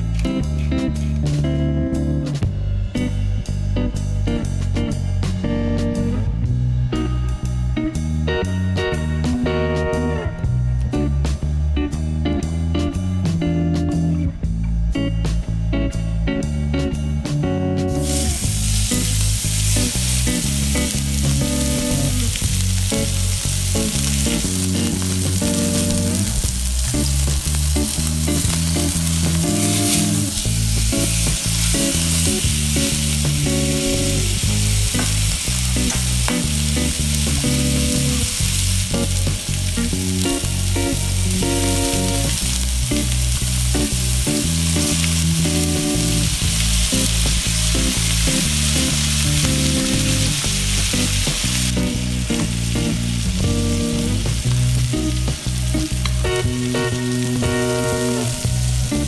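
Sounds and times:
butter foaming: 0:18.0 - 0:59.0
steak sizzling in a frying pan: 0:18.0 - 0:59.0.

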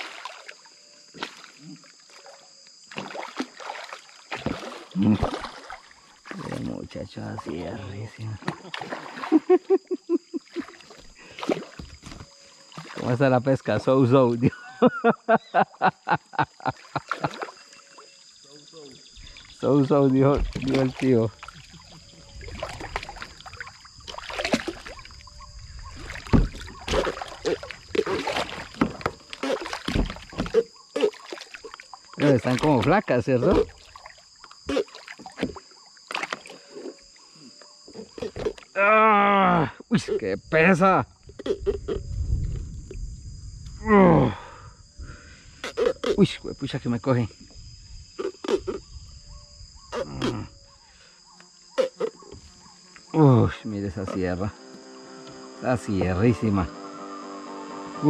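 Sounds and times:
water splashing: 0:00.0 - 0:09.7, 0:10.3 - 0:13.4, 0:16.6 - 0:18.1, 0:19.2 - 0:37.0
knocks against a boat: 0:20.3 - 0:20.8, 0:26.2 - 0:27.2, 0:27.9 - 0:29.2, 0:29.8 - 0:30.6
knocks on boat: 0:26.2 - 0:27.2.

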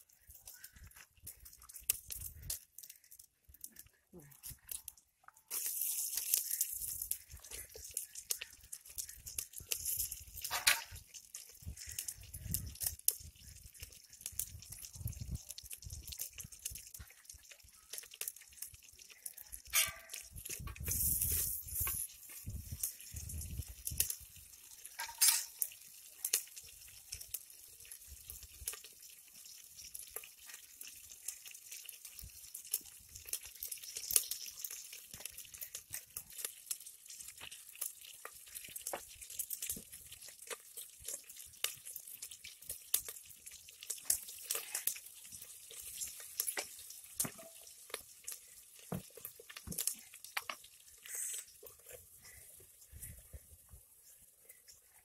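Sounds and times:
onions sizzling in oil: 0:05.5 - 0:55.0
metal spoon clinking on pot: 0:19.7 - 0:20.4, 0:24.9 - 0:25.6.

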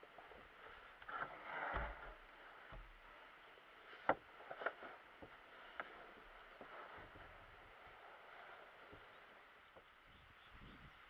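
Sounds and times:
wooden board thudding: 0:01.2 - 0:03.1.

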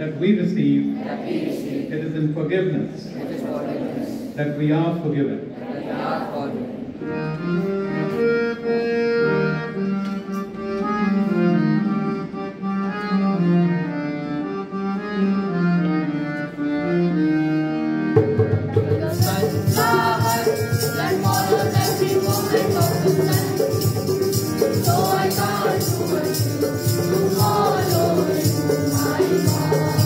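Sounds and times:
harmonium melody: 0:07.0 - 0:30.0
instrumental music with quick beat: 0:18.0 - 0:30.0
drum strokes: 0:18.2 - 0:30.0
jingling rhythm: 0:18.7 - 0:30.0.

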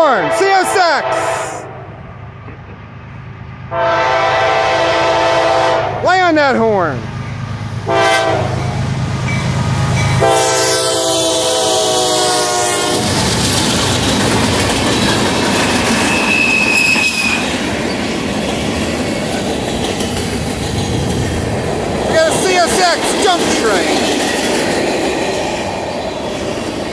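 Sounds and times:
locomotive horn blasts: 0:00.0 - 0:01.9, 0:03.7 - 0:06.0, 0:07.8 - 0:08.8, 0:10.2 - 0:13.1
train wheels clattering on rails: 0:12.8 - 0:26.9
high wheel squeal: 0:15.8 - 0:18.0.

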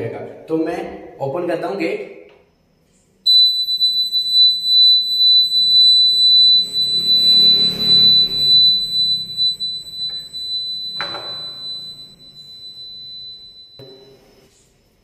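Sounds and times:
high-pitched buzzer tone: 0:03.3 - 0:14.4.

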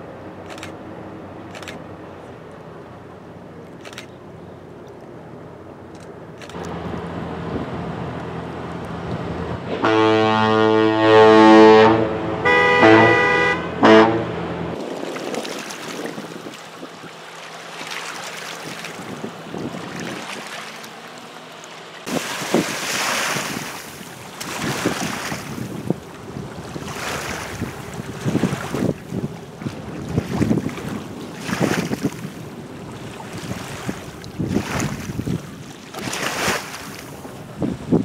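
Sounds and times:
water noise: 0:00.0 - 0:38.0
ship horn blasts: 0:08.8 - 0:14.8
wind on microphone: 0:18.6 - 0:20.5, 0:22.0 - 0:38.0.

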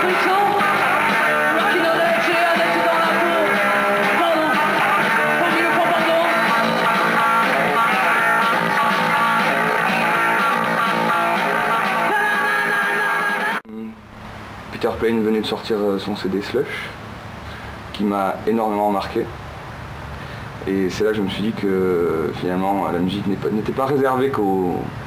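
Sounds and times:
rock band with electric guitar: 0:00.0 - 0:13.6.

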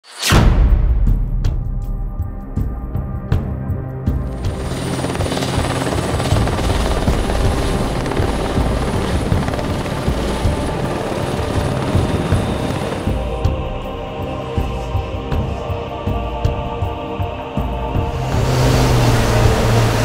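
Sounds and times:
music: 0:00.0 - 0:20.0
helicopter rotor and engine: 0:04.0 - 0:20.0
high whine: 0:17.5 - 0:20.0.

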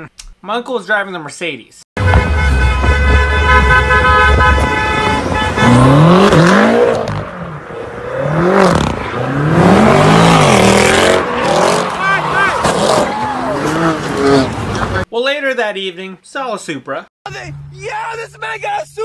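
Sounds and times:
long car horn blast: 0:02.0 - 0:06.3
car engine revving: 0:02.0 - 0:15.1.

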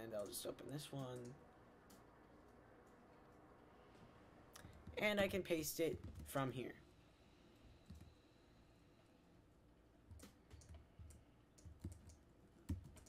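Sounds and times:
computer keys and mouse clicks: 0:10.1 - 0:13.0.

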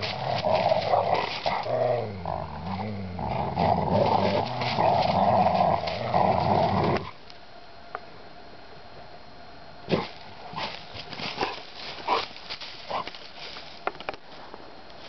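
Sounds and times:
dogs growling: 0:00.0 - 0:07.2.

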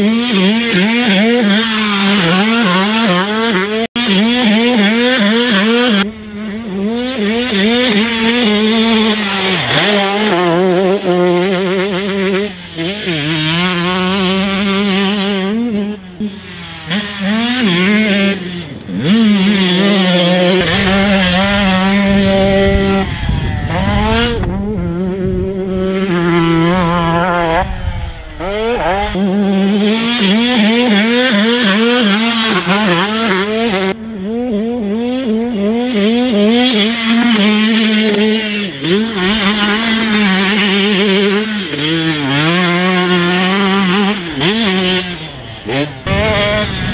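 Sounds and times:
two-stroke motorcycle engine revving: 0:00.0 - 0:46.9
low rumble: 0:21.8 - 0:29.2, 0:46.1 - 0:46.9.

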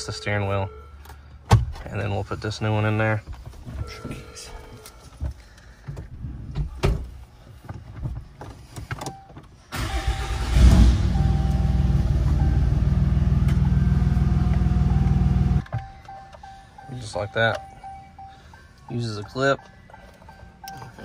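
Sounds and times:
diesel engine starting and idling: 0:09.7 - 0:16.9.

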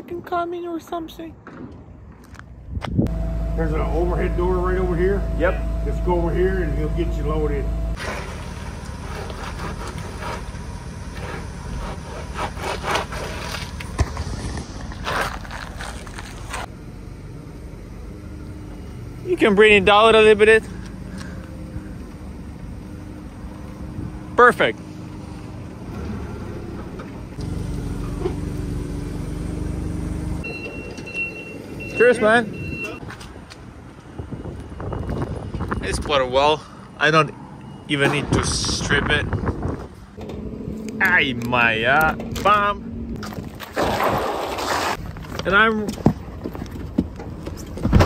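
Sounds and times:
wind rumble on microphone: 0:02.6 - 0:03.1, 0:34.0 - 0:36.3, 0:38.2 - 0:40.9
reversing alarm beeping: 0:03.1 - 0:08.0, 0:30.4 - 0:33.0, 0:37.5 - 0:38.0
forklift engine running: 0:03.1 - 0:32.8, 0:39.9 - 0:43.2.

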